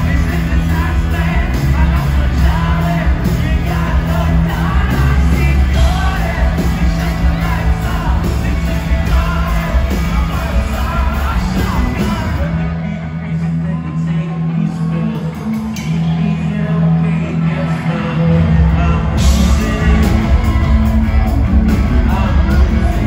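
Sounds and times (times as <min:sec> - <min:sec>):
live rock band playing: 0:00.0 - 0:23.0
person singing lead vocals: 0:00.0 - 0:23.0.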